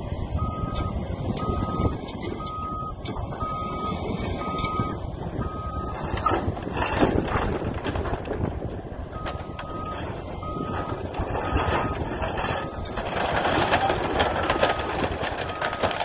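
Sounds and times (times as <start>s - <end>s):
diesel excavator engine rumble: 0.0s - 16.0s
reversing alarm beeping: 0.4s - 6.4s, 9.2s - 16.0s
cracking and clattering: 6.2s - 8.6s, 10.7s - 16.0s.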